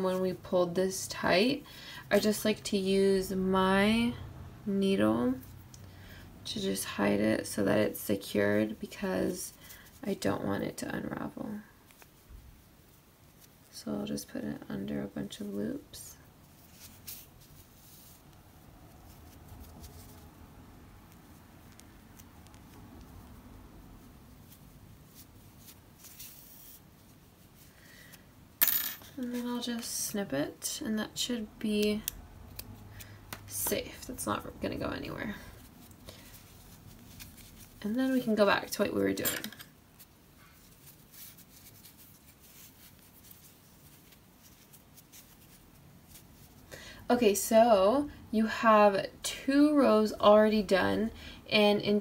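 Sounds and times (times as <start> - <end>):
yarn rustling and scratching: 8.3 - 14.3, 16.3 - 28.2, 33.5 - 38.8, 39.8 - 46.7.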